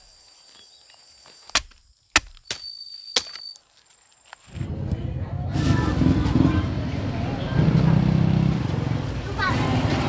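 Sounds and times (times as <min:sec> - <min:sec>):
sharp chopping knocks: 0:01.5 - 0:03.4.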